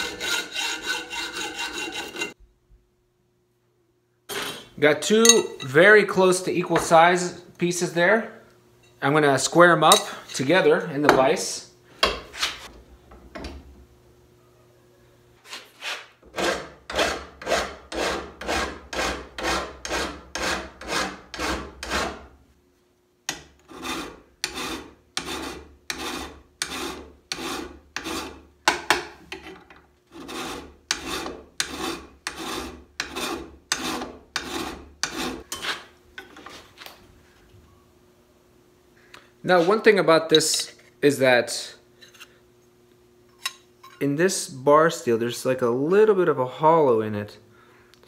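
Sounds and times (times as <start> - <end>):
hand file rasping on steel: 0.0 - 2.4, 15.5 - 22.3, 23.3 - 28.4, 30.1 - 35.8.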